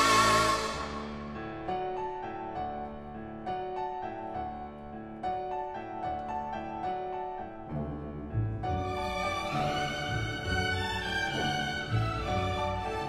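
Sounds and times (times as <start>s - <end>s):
orchestral music: 0.0s - 2.2s, 7.7s - 13.0s.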